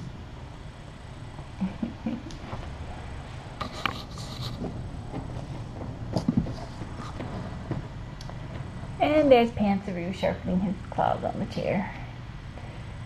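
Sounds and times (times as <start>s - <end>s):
kittens scratching and rustling rug: 2.4s - 8.7s.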